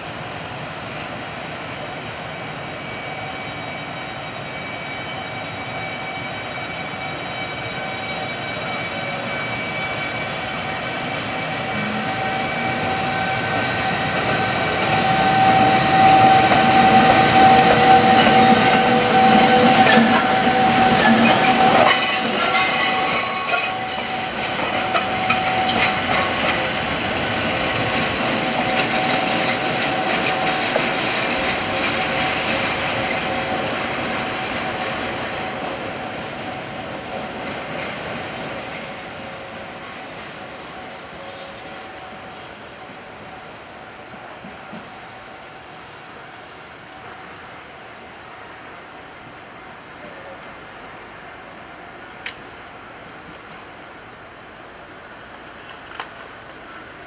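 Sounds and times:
electric locomotive whine: 0.0s - 57.0s
high-pitched wheel squeal: 2.4s - 26.4s
wheels running on rails: 11.7s - 36.2s.

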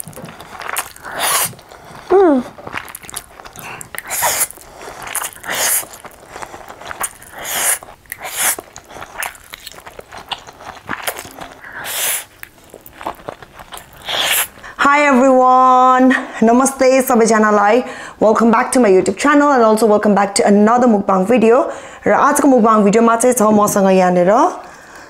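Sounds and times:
chewing: 0.0s - 14.8s
person slurping noodles: 0.0s - 14.8s.

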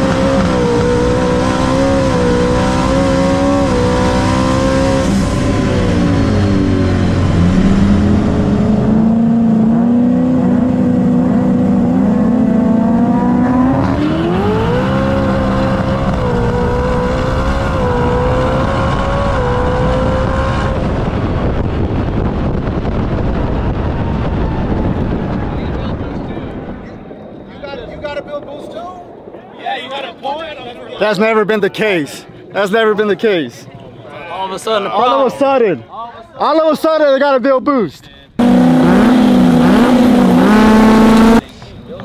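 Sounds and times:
truck engine revving: 0.0s - 25.6s, 38.4s - 41.4s.

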